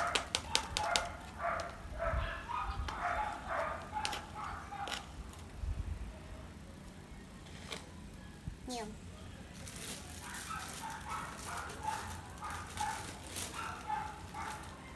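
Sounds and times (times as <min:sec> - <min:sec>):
dog barking: 0:00.0 - 0:05.1, 0:10.2 - 0:14.9.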